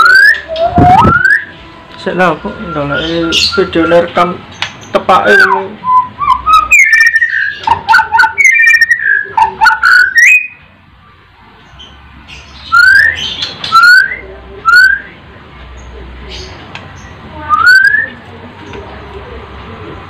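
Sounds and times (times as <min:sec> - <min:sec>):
bird singing whistled phrases: 0:00.0 - 0:01.5, 0:02.4 - 0:04.1, 0:05.2 - 0:10.7, 0:12.6 - 0:15.2, 0:17.4 - 0:18.2.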